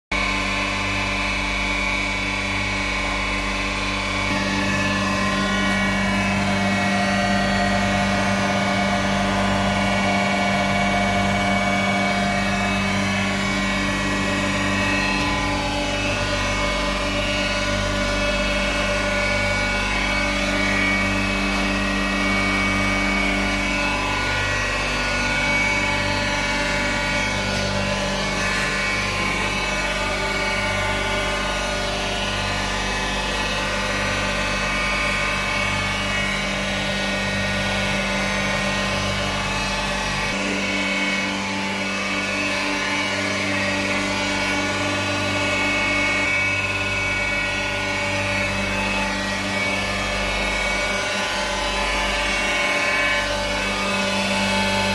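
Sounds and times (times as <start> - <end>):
machine motors humming: 0.2 - 54.9.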